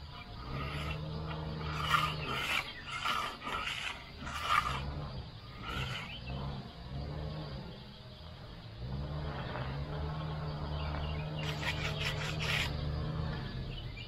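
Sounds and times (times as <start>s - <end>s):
low hum: 0.0s - 14.0s
hand pad rasping on concrete: 11.4s - 12.7s.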